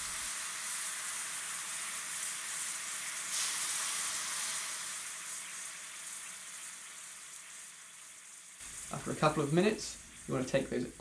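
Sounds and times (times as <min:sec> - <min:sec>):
rice sizzling in a frying pan: 0:00.0 - 0:11.0.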